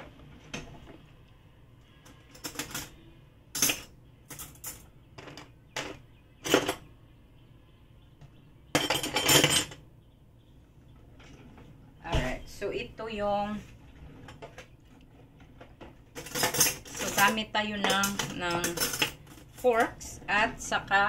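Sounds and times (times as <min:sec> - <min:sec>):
kitchenware clattering: 0:02.1 - 0:06.9, 0:08.7 - 0:09.9, 0:15.4 - 0:20.2.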